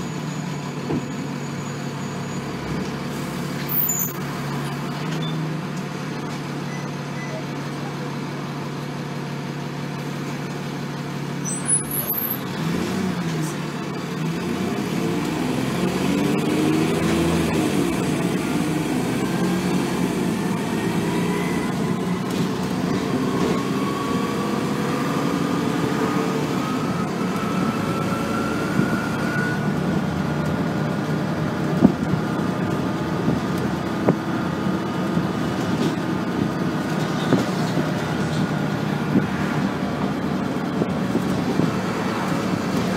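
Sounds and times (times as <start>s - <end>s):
bus diesel engine accelerating: 0.0s - 42.9s
bus body rattling: 29.6s - 42.9s.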